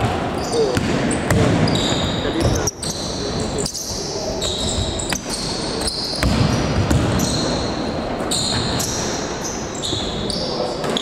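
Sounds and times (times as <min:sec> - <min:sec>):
basketball bouncing on gym floor: 0:00.0 - 0:03.1, 0:03.9 - 0:09.2
gym hall noise: 0:00.0 - 0:11.0.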